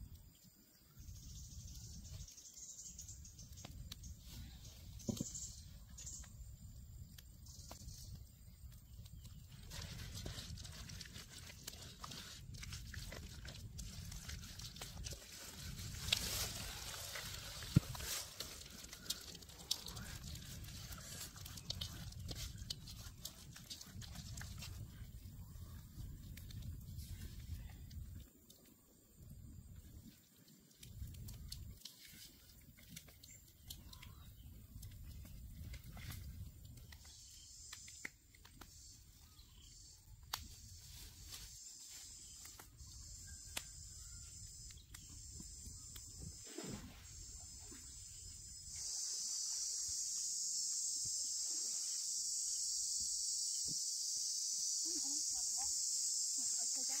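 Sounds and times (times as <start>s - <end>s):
hands squelching spice paste: 9.0s - 27.7s
insects shrilling: 37.0s - 57.0s.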